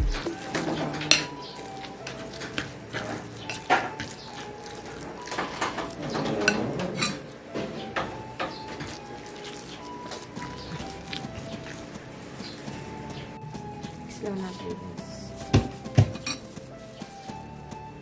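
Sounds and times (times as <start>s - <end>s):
spoon scraping ceramic bowl: 0.3s - 7.3s.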